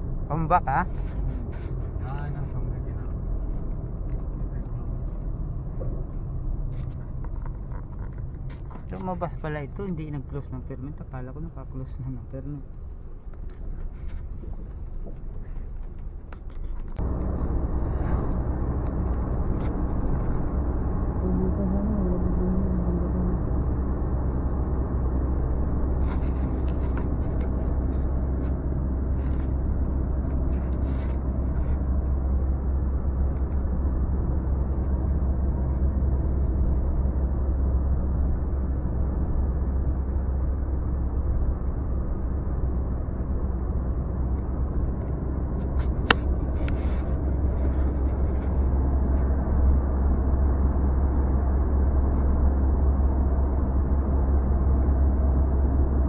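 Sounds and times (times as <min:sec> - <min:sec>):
car engine and tyres rumbling: 0:00.0 - 0:56.0.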